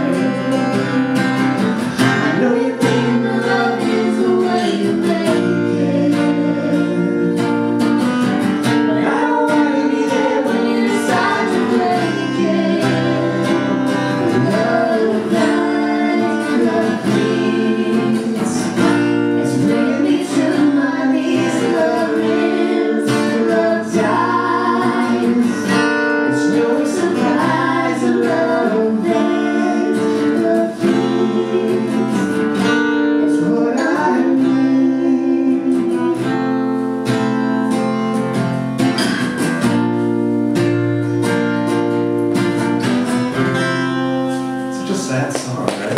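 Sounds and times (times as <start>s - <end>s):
man and woman singing: 0.0s - 7.9s, 8.6s - 36.8s
acoustic guitar strumming: 0.0s - 45.9s.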